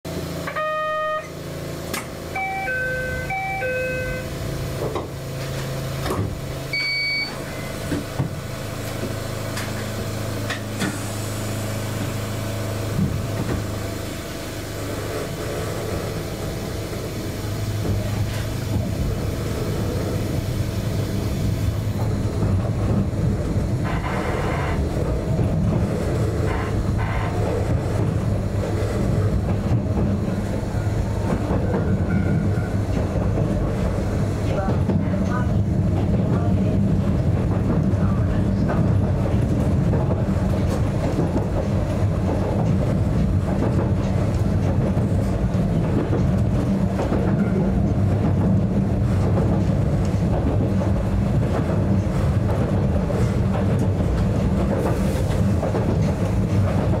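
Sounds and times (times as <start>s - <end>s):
train motor hum: 0.1s - 57.0s
brief higher tone: 0.5s - 1.4s, 2.3s - 4.3s
wheels running on rails: 1.9s - 57.0s
electronic chime tones: 2.4s - 4.3s.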